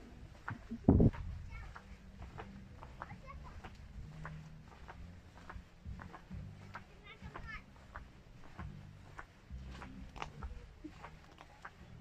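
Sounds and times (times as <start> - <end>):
footsteps on grass: 0.0 - 12.0.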